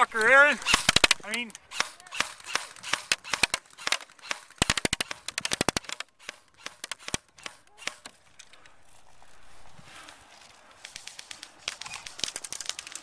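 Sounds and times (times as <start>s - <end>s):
airsoft rifles firing: 0.0s - 8.3s.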